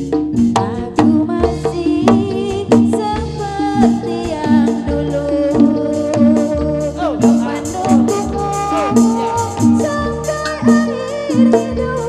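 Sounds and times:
steady drum pattern: 0.0 - 12.0
metallophones ringing: 3.5 - 12.0.

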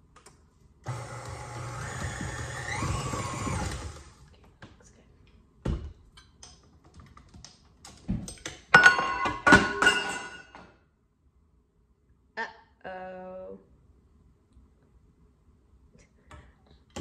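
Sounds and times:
stand mixer motor running: 0.9 - 4.2.

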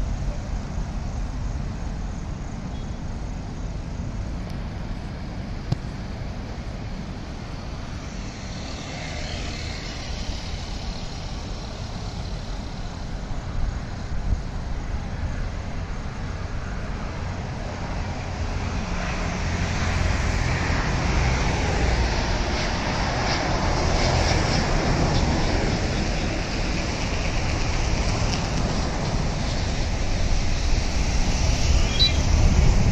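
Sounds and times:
jet airliner passing overhead: 0.0 - 32.9
road traffic rumble: 0.0 - 32.9.

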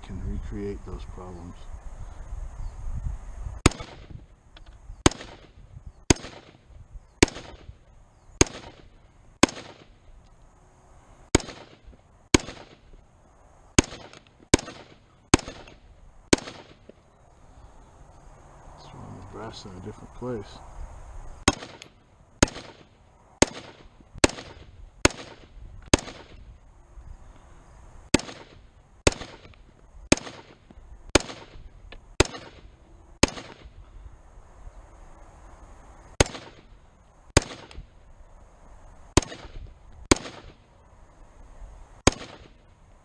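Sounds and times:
rifle shots with echo: 3.6 - 4.2, 5.0 - 7.8, 8.4 - 10.0, 11.3 - 12.9, 13.8 - 17.0, 21.4 - 26.5, 28.1 - 33.8, 36.2 - 37.9, 39.1 - 40.7, 42.0 - 42.6.

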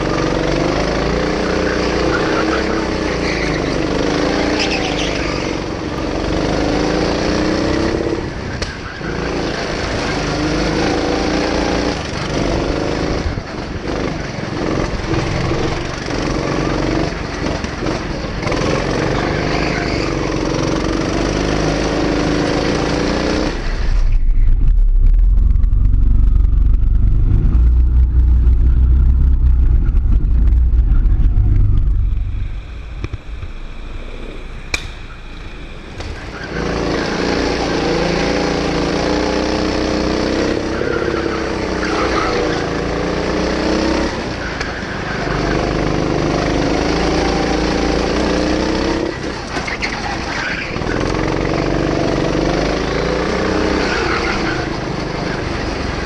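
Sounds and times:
go-kart engine revving: 0.0 - 24.5, 25.4 - 56.0
loud low rumble: 23.6 - 37.5.

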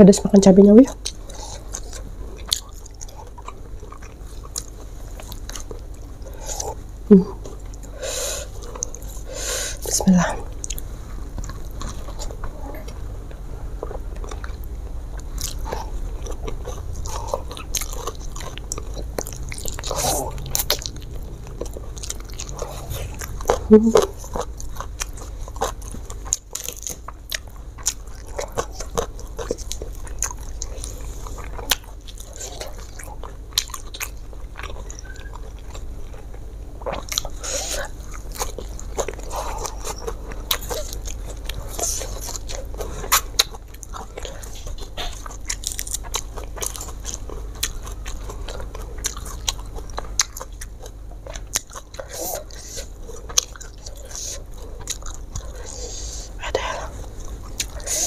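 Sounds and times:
person chewing food: 0.9 - 58.0.

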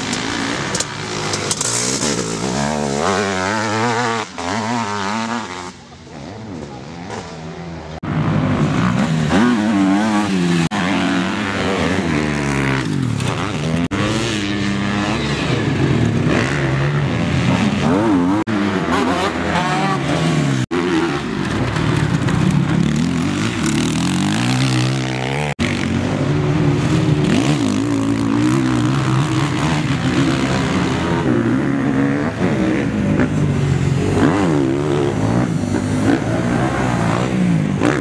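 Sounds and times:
motocross bike engines revving: 0.0 - 38.0.

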